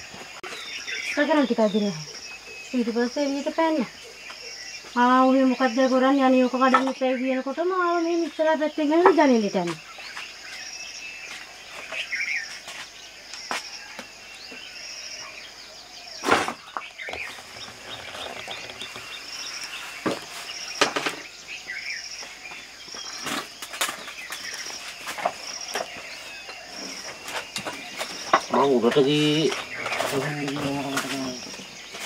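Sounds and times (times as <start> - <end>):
insect chirping: 0.0 - 32.0.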